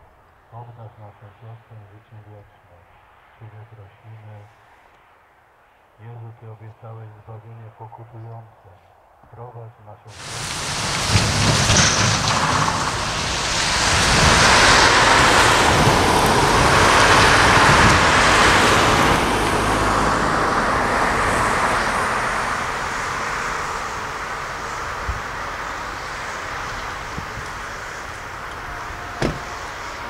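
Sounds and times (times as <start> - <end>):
road vehicle passing: 10.1 - 30.0.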